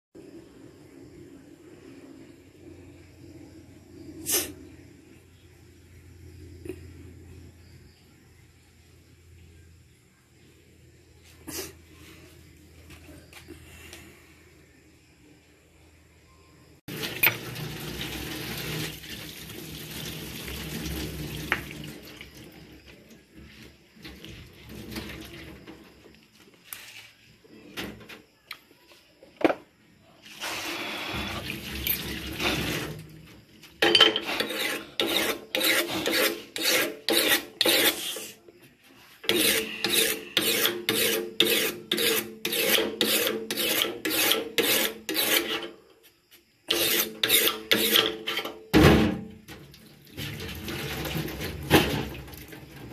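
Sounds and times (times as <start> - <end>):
knife scraping fish scales: 34.2 - 38.4, 39.2 - 45.8, 46.7 - 48.6.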